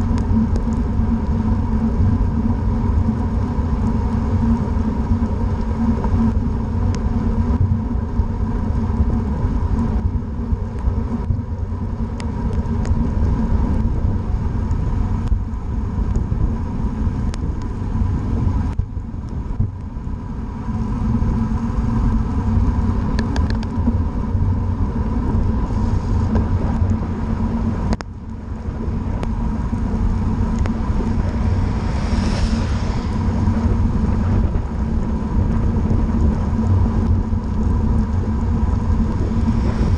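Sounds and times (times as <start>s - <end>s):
wind rumble on microphone: 0.0s - 39.9s
tyre hiss on wet pavement: 30.0s - 35.0s.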